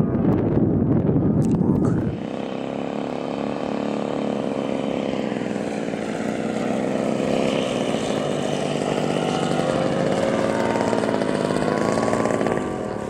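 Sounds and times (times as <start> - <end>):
model plane engines buzzing: 0.2 - 13.0.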